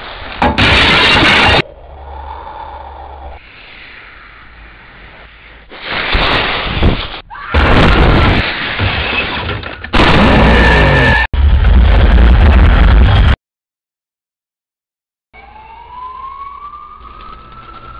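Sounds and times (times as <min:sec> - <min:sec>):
rumbling crashing blasts: 0:05.8 - 0:13.4.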